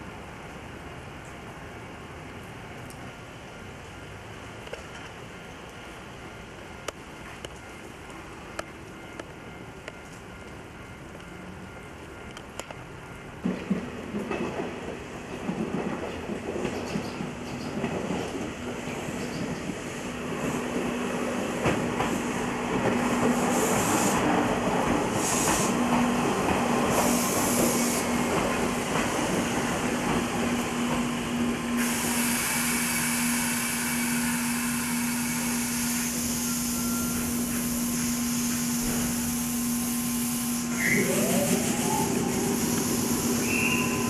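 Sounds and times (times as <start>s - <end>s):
electric train humming: 14.9s - 44.0s
air hissing: 23.3s - 24.3s, 25.1s - 25.9s, 26.9s - 28.2s, 31.7s - 44.0s.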